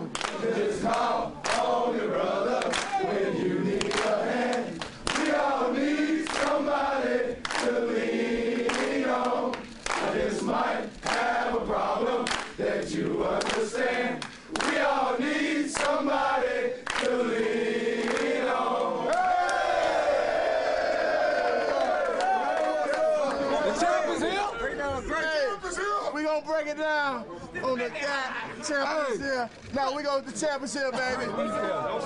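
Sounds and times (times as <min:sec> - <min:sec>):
group singing and chanting: 0:00.0 - 0:22.0
sharp shouts or claps: 0:02.7 - 0:03.1.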